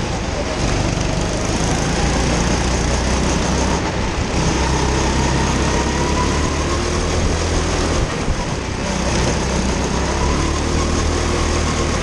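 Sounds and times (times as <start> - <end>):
go-kart engine running: 0.0 - 12.0.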